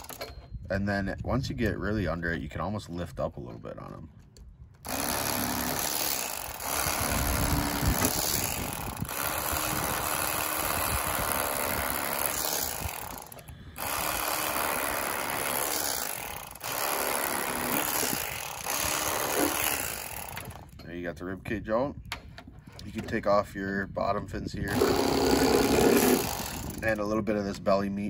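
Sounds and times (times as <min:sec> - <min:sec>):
electric fillet knife buzzing: 0:04.9 - 0:20.5, 0:24.7 - 0:26.8.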